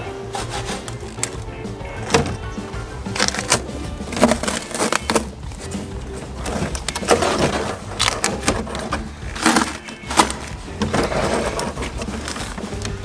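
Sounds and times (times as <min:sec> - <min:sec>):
background music: 0:00.0 - 0:13.0.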